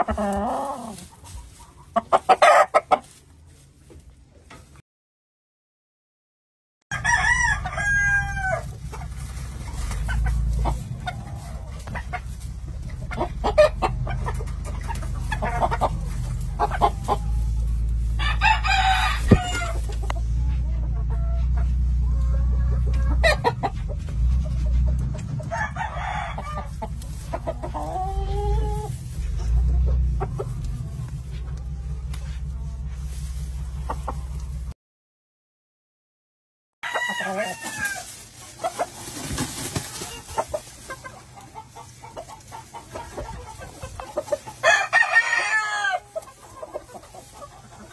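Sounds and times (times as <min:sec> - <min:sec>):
roosters crowing: 0:00.0 - 0:03.0, 0:06.9 - 0:34.7, 0:36.8 - 0:47.9
chickens clucking: 0:00.0 - 0:04.8, 0:07.0 - 0:34.8, 0:36.8 - 0:47.9
steady low rumble: 0:06.9 - 0:34.8.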